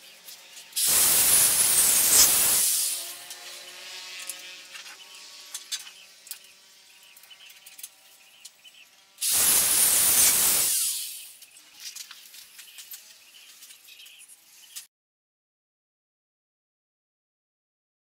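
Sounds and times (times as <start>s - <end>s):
arc welding hiss: 0.7s - 3.3s, 9.2s - 11.5s.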